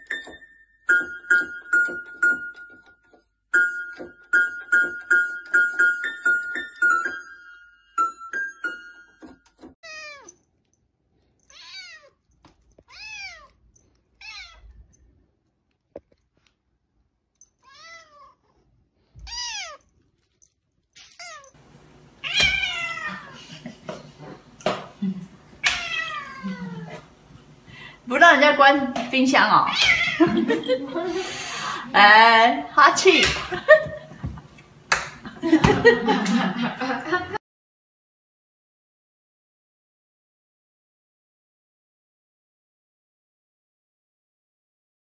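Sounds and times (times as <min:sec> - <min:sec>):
cat meowing: 0:09.8 - 0:10.4, 0:11.5 - 0:12.2, 0:12.9 - 0:13.6, 0:14.2 - 0:14.8, 0:17.6 - 0:18.5, 0:19.2 - 0:19.8, 0:21.2 - 0:21.6, 0:22.2 - 0:23.4, 0:25.6 - 0:27.0, 0:29.7 - 0:30.2.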